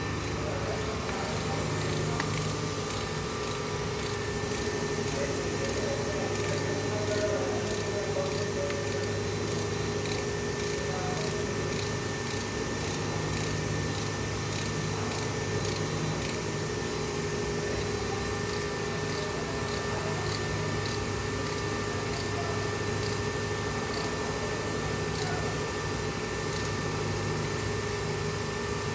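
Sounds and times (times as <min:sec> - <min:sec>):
power tool humming and hissing: 0:00.0 - 0:28.9
faint regular ticking: 0:00.2 - 0:16.4, 0:23.0 - 0:24.3.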